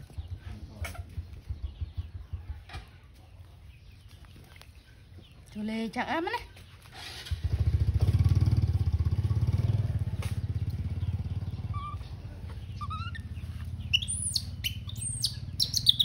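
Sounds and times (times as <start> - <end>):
motorcycle engine puttering: 0.0 - 3.1, 6.8 - 16.0
short high chirping calls: 11.5 - 16.0.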